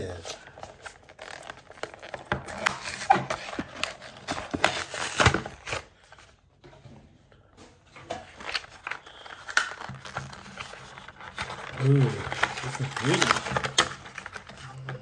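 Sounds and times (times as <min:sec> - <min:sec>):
packaging being torn open: 0:08.4 - 0:14.9.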